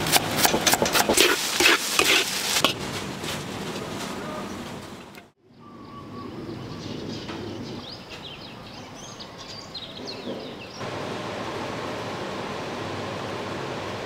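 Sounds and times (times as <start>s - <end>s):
outdoor background hum: 2.6s - 14.0s
small birds chirping: 5.5s - 10.8s.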